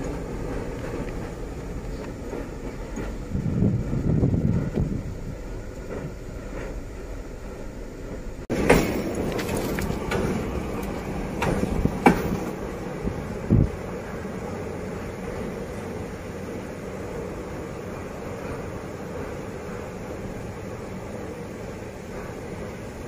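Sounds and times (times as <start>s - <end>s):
diesel locomotive rumble: 0.0s - 23.0s
wheels knocking over rails: 8.5s - 12.6s.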